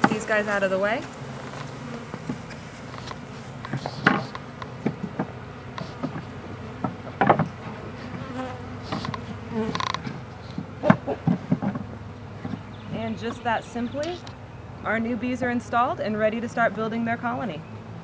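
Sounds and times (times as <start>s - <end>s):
bees buzzing: 0.0s - 18.0s
wooden knocks: 2.1s - 7.6s, 8.9s - 13.0s.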